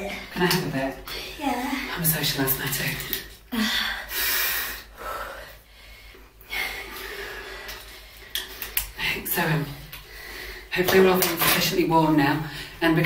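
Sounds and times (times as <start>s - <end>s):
quiet breathing: 2.9s - 10.8s.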